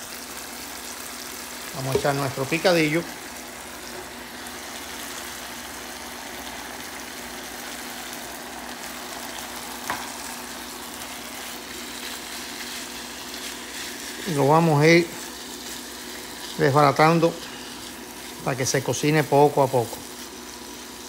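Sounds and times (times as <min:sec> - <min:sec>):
sizzling in a frying pan: 0:00.0 - 0:21.0
spatula pushing meat: 0:03.8 - 0:21.0.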